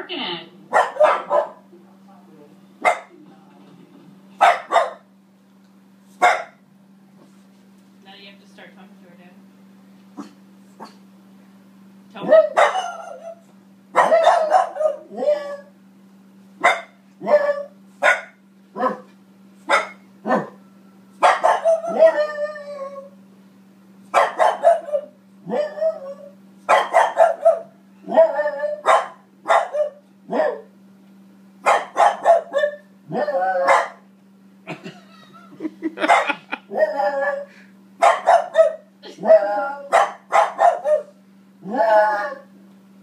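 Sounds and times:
dog barking: 0:00.7 - 0:01.6, 0:02.8 - 0:03.1, 0:04.4 - 0:05.1, 0:06.2 - 0:06.6, 0:12.2 - 0:13.4, 0:14.0 - 0:15.4, 0:16.6 - 0:19.1, 0:19.7 - 0:20.6, 0:21.2 - 0:22.2, 0:24.1 - 0:25.7, 0:26.7 - 0:30.7, 0:31.6 - 0:32.9, 0:33.6 - 0:34.0, 0:36.0 - 0:36.5, 0:38.0 - 0:38.9, 0:39.9 - 0:41.1.

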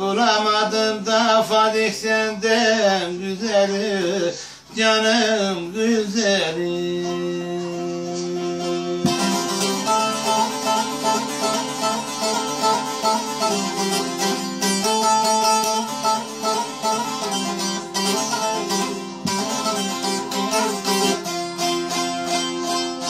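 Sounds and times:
plucked long-necked lute melody: 0:06.4 - 0:23.0.

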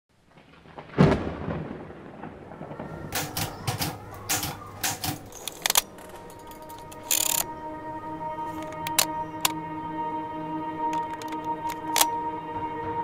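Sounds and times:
sharp clicks and clacks: 0:03.1 - 0:06.1.

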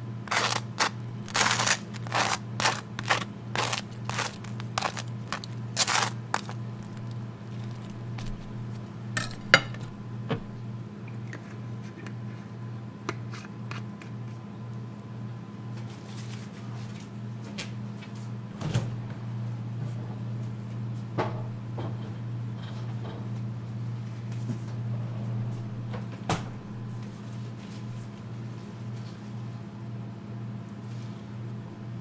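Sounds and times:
steady low hum: 0:00.0 - 0:15.7, 0:18.4 - 0:32.0
dishes and cutlery clinking: 0:09.2 - 0:09.9.

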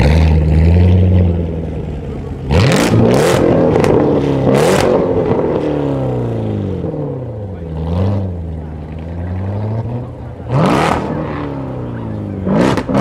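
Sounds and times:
car engine revving through gears: 0:02.5 - 0:13.0.

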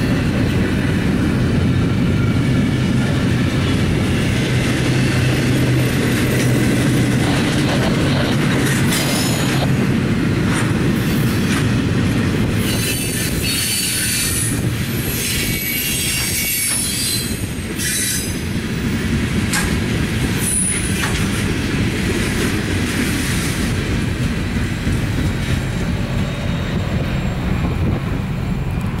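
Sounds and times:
freight cars rumbling on rails: 0:00.0 - 0:29.0
wheels clicking over rail joints: 0:03.5 - 0:09.8, 0:19.3 - 0:26.2
high-pitched wheel squeal: 0:12.6 - 0:18.4.

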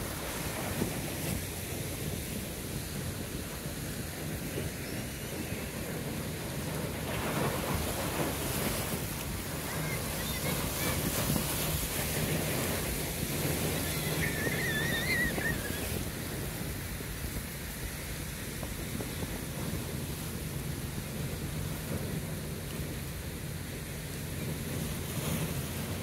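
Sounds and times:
wind buffeting microphone: 0:00.0 - 0:26.0
sea water splashing against rocks: 0:06.2 - 0:17.8.

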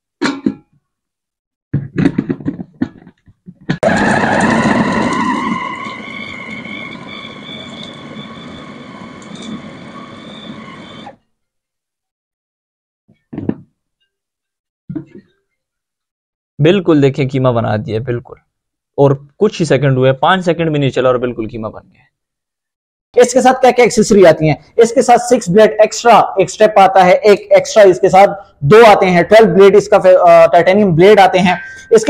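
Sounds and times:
food chopper motor whining: 0:03.8 - 0:11.2.

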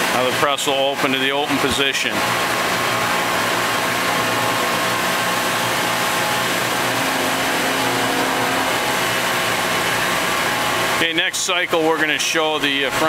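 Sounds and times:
hydraulic power unit hum: 0:00.0 - 0:13.0
extra low hum: 0:02.1 - 0:11.0.

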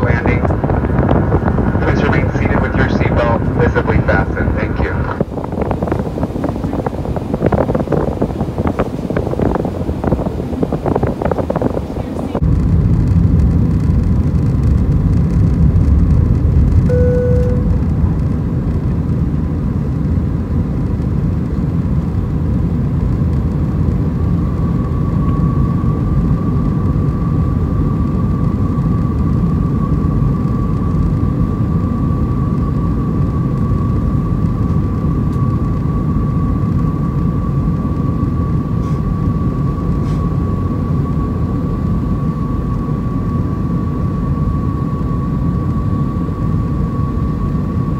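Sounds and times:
airplane cabin rumble: 0:00.0 - 0:47.9
steady high whine: 0:00.0 - 0:47.9
brief cabin tone: 0:16.9 - 0:18.1.

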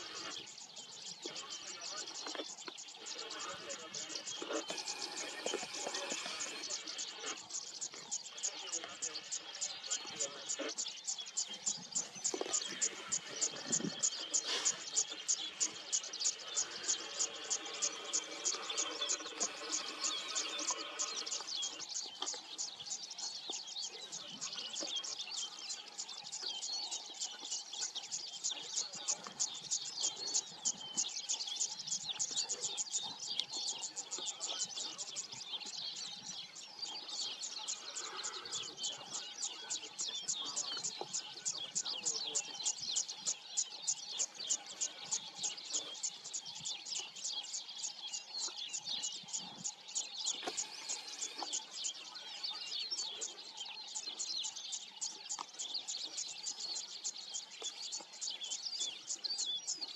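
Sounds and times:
birds chirping: 0:00.0 - 0:59.9.

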